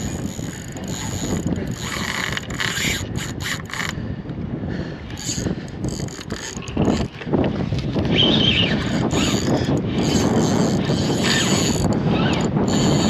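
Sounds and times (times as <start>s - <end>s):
fishing reel rapid clicking: 0.0s - 4.0s, 5.1s - 7.1s, 8.1s - 13.0s
reel high whine: 0.0s - 4.0s, 7.8s - 13.0s.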